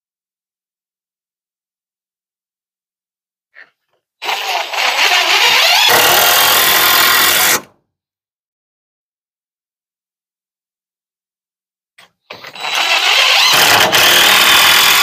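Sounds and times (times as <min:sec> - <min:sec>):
handheld power tool running: 0:04.2 - 0:07.7, 0:12.3 - 0:15.0.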